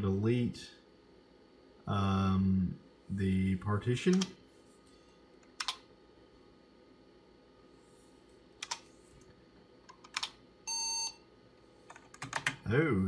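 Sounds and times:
faint steady hum: 0.0 - 13.0
keyboard key presses: 11.9 - 12.6.

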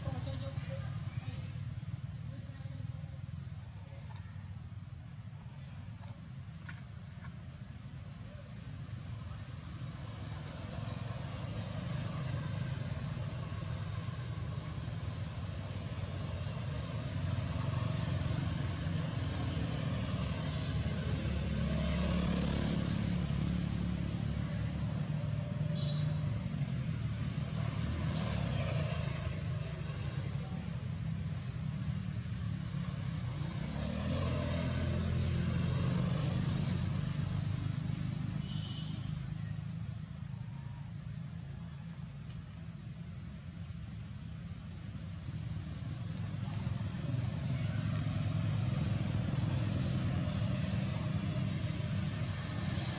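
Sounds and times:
vehicles passing on road: 0.0 - 52.9.

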